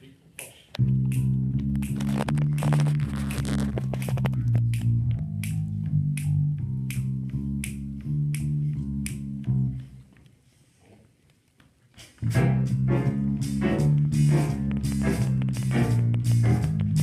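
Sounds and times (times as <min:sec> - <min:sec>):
finger snaps: 0:00.3 - 0:10.3
electric bass guitar line: 0:00.8 - 0:10.0, 0:12.2 - 0:17.0
big band with saxophones: 0:12.2 - 0:17.0.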